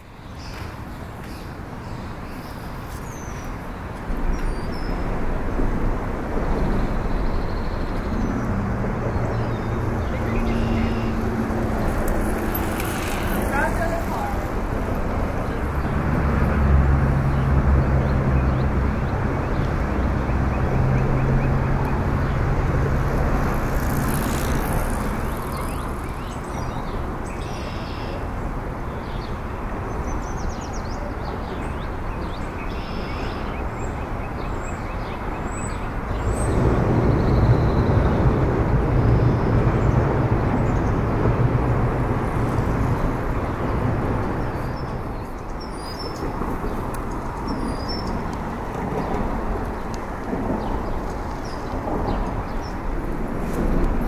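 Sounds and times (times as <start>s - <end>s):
road traffic rumble: 0.0s - 54.0s.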